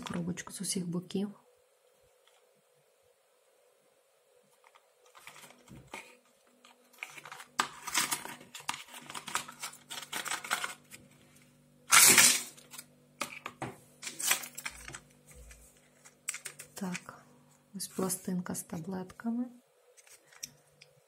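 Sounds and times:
card and paper rustling: 4.5s - 17.2s, 20.0s - 20.6s.

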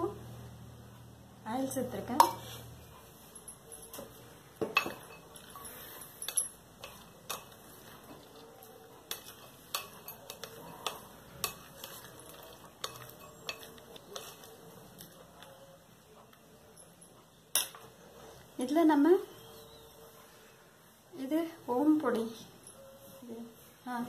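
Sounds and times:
clink on glass: 4.6s - 6.6s.

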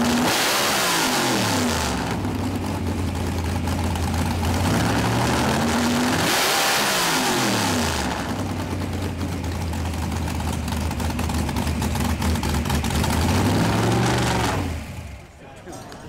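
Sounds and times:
drag racing engine idling: 0.0s - 16.0s.

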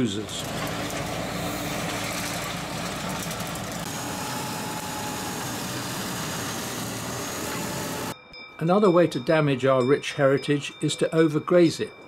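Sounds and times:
mower cutting grass: 0.0s - 8.2s
tractor pulling hay rake: 0.0s - 8.2s.

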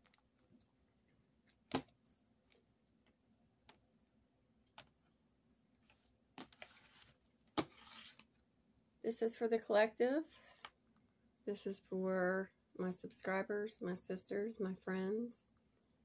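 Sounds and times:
cards sliding rustles: 5.8s - 8.4s.

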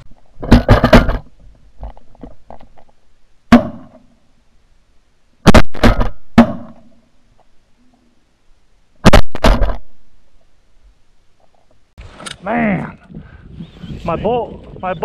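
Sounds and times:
shotguns firing: 5.4s - 6.9s, 9.0s - 9.9s.

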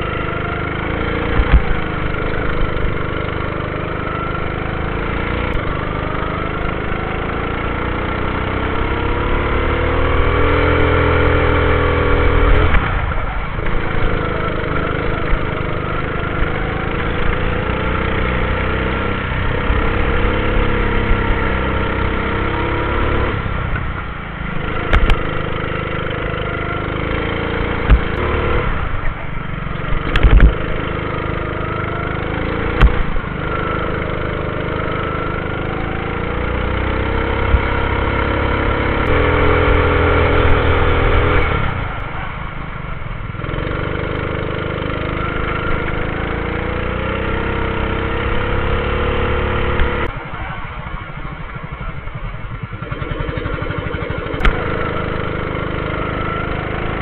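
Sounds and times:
go-kart engine revving: 0.0s - 57.0s.

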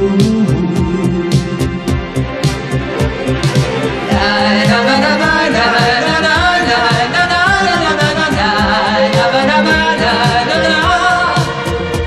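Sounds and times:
orchestral pop backing with synthesizer: 0.0s - 12.0s
man and woman singing duet: 4.1s - 12.0s.

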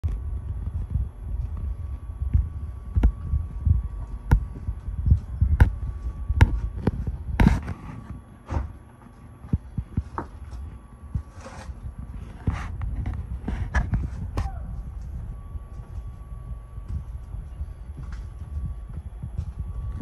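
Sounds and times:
footsteps on wooden floor: 16.8s - 20.0s.

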